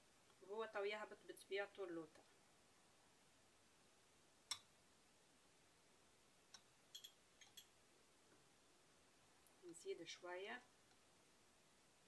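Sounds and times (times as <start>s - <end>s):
metal spoon clinking on glass: 6.9s - 7.7s.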